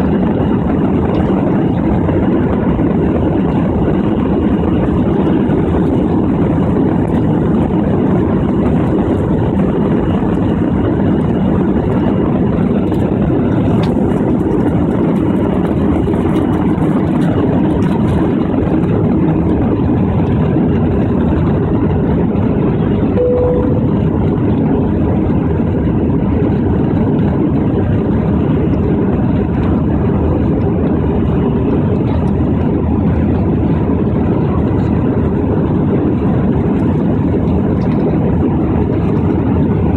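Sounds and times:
jet engines roaring: 0:00.0 - 0:39.9
single cabin tone: 0:23.2 - 0:24.5.

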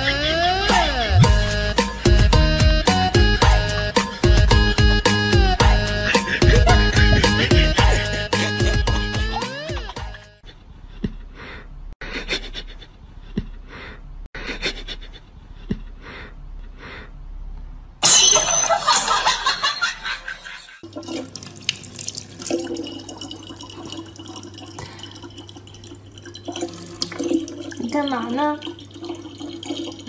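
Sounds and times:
tap water running into bottle: 0:20.8 - 0:30.0.

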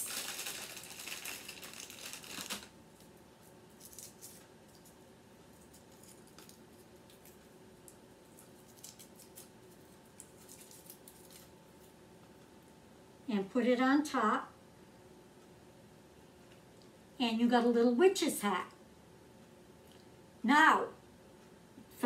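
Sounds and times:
candy bag rustling: 0:00.0 - 0:04.4, 0:08.3 - 0:11.9
foil crinkling: 0:00.0 - 0:04.4, 0:08.3 - 0:11.5.

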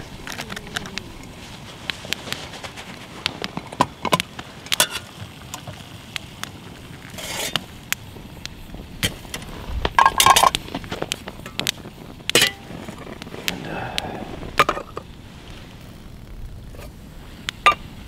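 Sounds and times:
metal pots clinking and scraping: 0:02.4 - 0:05.9, 0:07.0 - 0:07.8, 0:09.0 - 0:13.5, 0:14.5 - 0:15.1.

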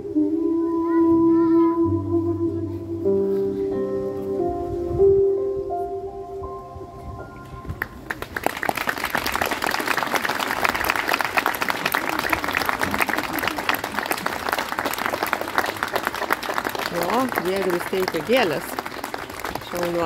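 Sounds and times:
audience applauding: 0:07.8 - 0:20.0.

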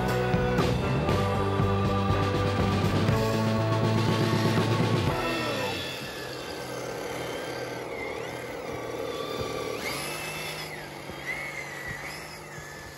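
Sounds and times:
electric motor whining: 0:00.0 - 0:12.9.

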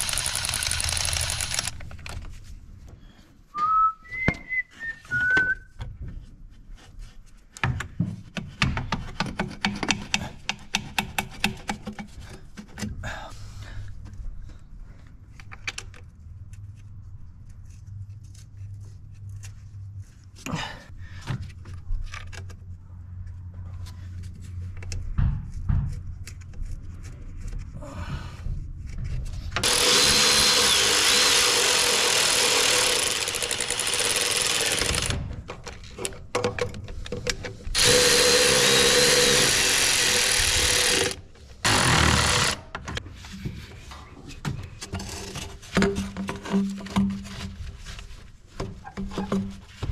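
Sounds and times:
power tool whining: 0:00.0 - 0:01.7, 0:29.6 - 0:35.2, 0:37.7 - 0:42.7.

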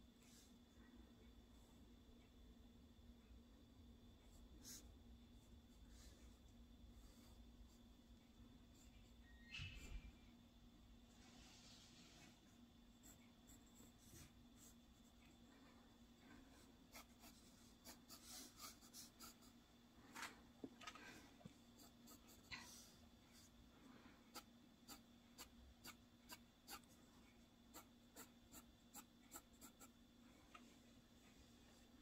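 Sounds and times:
faint steady hum: 0:00.0 - 0:32.0
pencil scratching on paper: 0:12.9 - 0:15.2, 0:16.6 - 0:19.6, 0:21.7 - 0:22.8, 0:24.3 - 0:27.0, 0:27.7 - 0:30.0.

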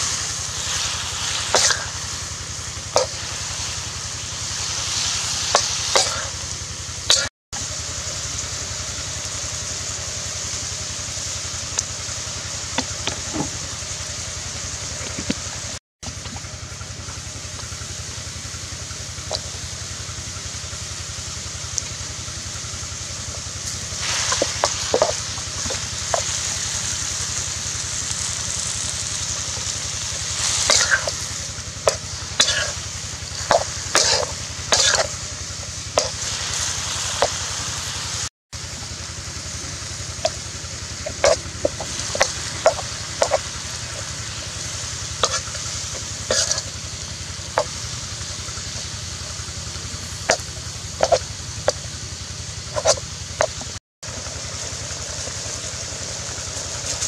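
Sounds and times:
spatula scraping a pan: 0:00.0 - 0:02.2, 0:02.9 - 0:03.7, 0:04.5 - 0:06.4, 0:23.9 - 0:26.6, 0:30.1 - 0:35.2, 0:41.0 - 0:44.2, 0:45.2 - 0:46.8, 0:50.2 - 0:51.2, 0:52.8 - 0:53.6
vegetables sizzling in a wok: 0:00.0 - 0:57.0.

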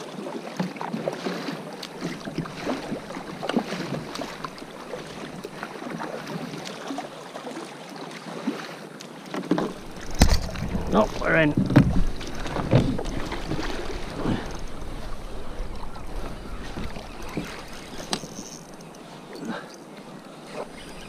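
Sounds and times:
paddle splashes: 0:00.0 - 0:21.0
water lapping against kayak: 0:00.0 - 0:21.0.

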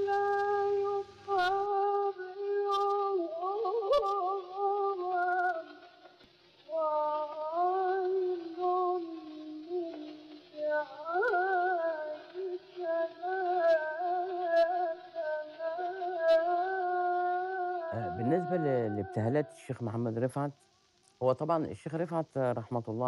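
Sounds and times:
faint clicks: 0:00.0 - 0:17.9, 0:19.6 - 0:22.5
person singing ornamented melody: 0:00.0 - 0:20.6.

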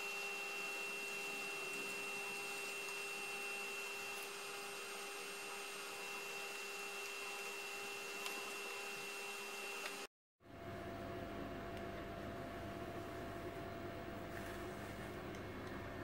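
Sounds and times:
thin high whine: 0:00.0 - 0:10.1.

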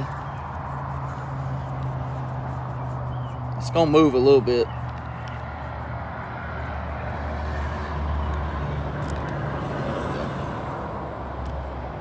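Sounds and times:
vehicle engine running: 0:00.0 - 0:09.1.

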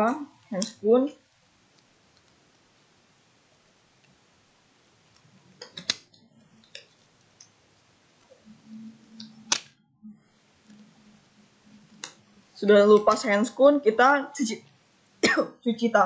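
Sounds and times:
small clicks: 0:01.7 - 0:02.4, 0:05.1 - 0:07.6.

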